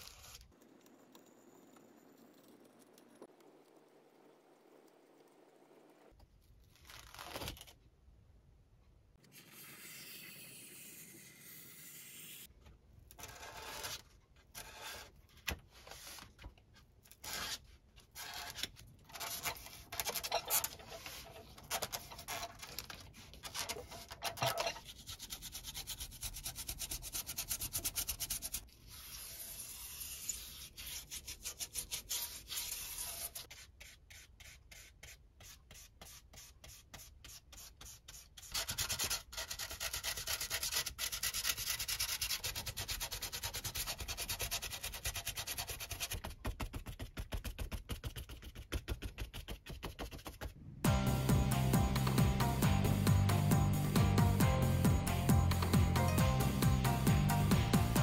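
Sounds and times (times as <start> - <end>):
tool scraping foam board: 13.2 - 16.4, 17.1 - 50.6.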